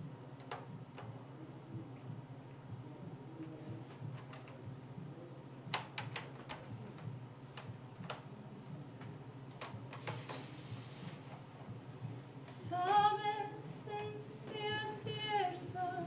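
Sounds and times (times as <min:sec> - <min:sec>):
faint steady hum: 0:00.0 - 0:16.0
wooden chair knocking and creaking: 0:09.5 - 0:10.5.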